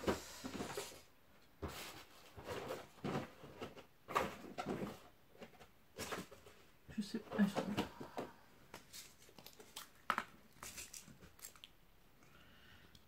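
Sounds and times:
hands rummaging through supplies: 0.1s - 11.6s
plastic box clattering: 1.6s - 6.7s.

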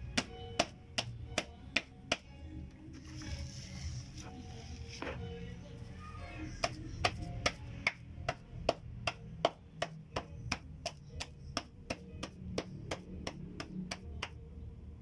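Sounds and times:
wet clay being beaten: 0.0s - 2.4s, 6.5s - 14.5s.

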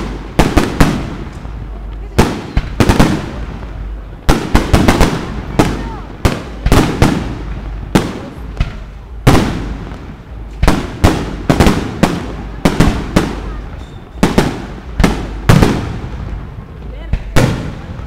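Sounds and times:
fireworks bursting: 0.0s - 18.0s.

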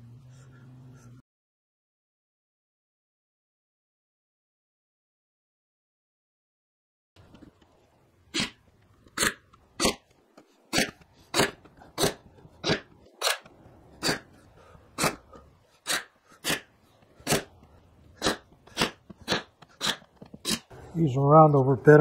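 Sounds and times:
brad nailer shots: 10.7s - 14.3s, 15.0s - 17.6s, 18.2s - 20.7s.

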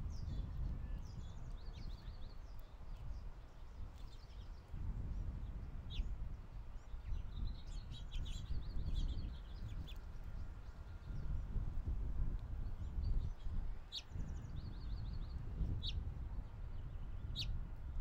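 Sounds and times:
songbirds chirping: 0.0s - 18.0s.

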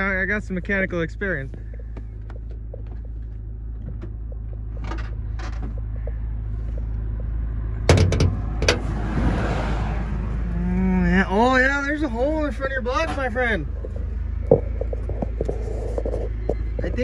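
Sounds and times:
steady low rumble: 0.0s - 17.0s
hood latch metallic clunk: 7.8s - 8.9s.

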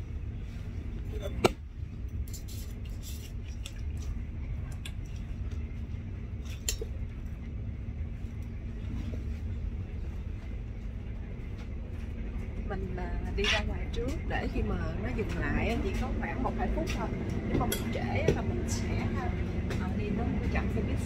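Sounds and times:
train rumble: 0.0s - 21.0s.

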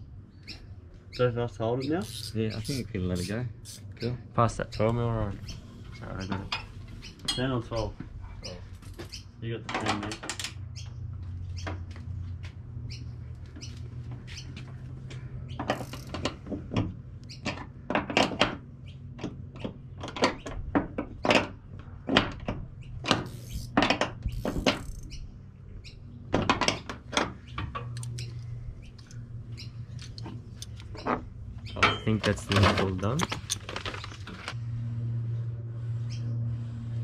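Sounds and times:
low hum: 33.5s - 37.0s.

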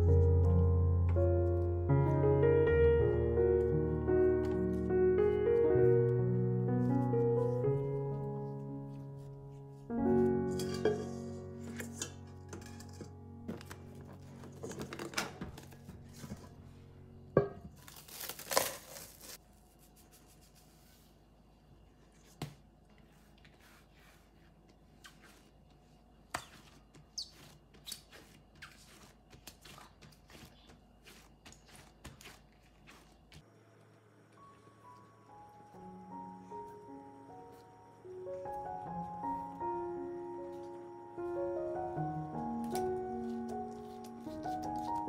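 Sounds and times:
soft background music: 0.0s - 18.7s, 34.0s - 45.0s.

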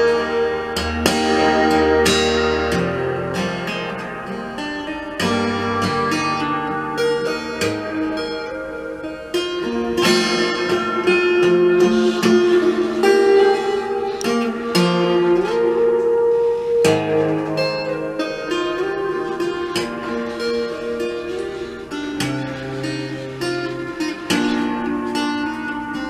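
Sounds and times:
fingerstyle acoustic guitar: 0.0s - 26.0s.

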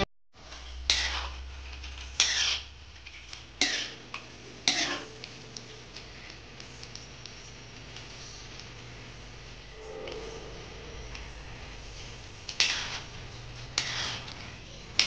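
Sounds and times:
metal spoon scraping a wok: 0.5s - 1.4s, 2.2s - 2.7s, 9.7s - 14.4s.

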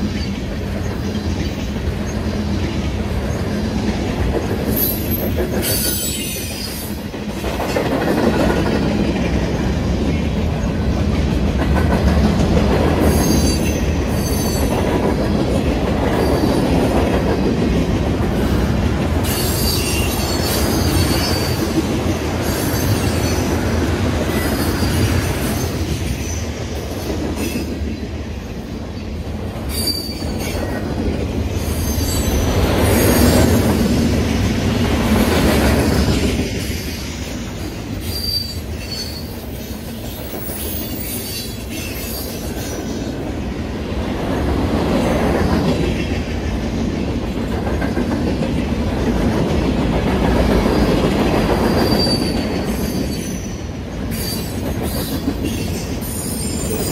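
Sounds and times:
freight train cars rumbling past: 0.0s - 56.9s
high wheel squeals: 19.2s - 21.7s, 29.7s - 30.6s, 38.0s - 39.7s, 51.7s - 53.6s.

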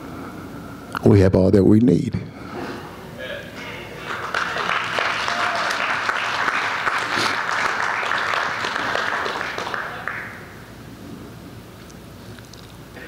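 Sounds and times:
congregation applauding: 3.9s - 10.6s.

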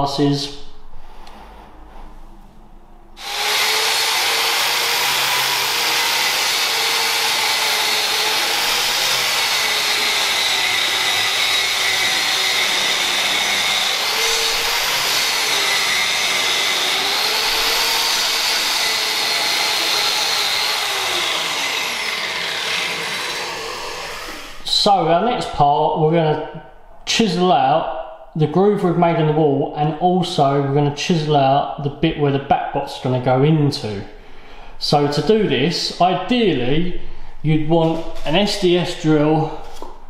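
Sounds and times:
vacuum cleaner running: 3.2s - 24.7s
wall chaser cutting masonry: 3.2s - 25.0s.

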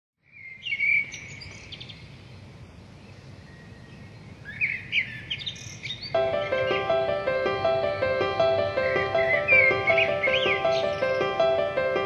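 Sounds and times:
birds chirping: 0.2s - 12.0s
low steady background noise: 0.2s - 12.0s
music: 6.2s - 12.0s.

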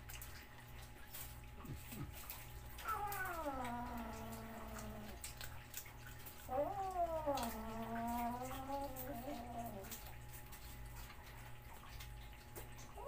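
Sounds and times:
cat meowing: 2.8s - 5.2s, 6.5s - 10.0s.

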